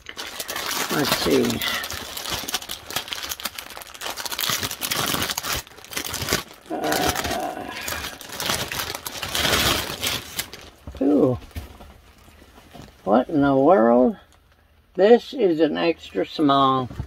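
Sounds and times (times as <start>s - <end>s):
plastic bag crinkling: 0.0s - 13.2s.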